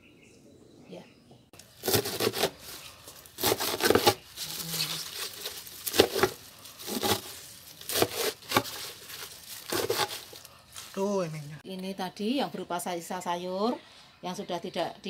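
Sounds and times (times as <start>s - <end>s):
leaves rustling: 1.6s - 11.6s
knife chopping on plastic: 3.4s - 4.2s, 5.2s - 10.3s.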